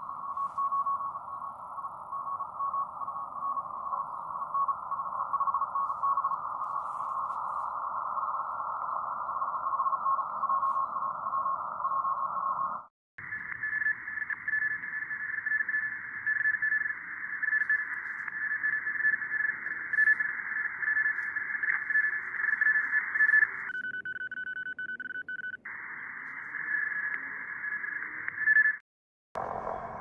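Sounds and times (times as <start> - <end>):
morse code beeps: 0.0 - 1.5, 2.1 - 7.5, 13.2 - 25.6
radio receiver hiss: 0.0 - 23.8, 25.7 - 28.6.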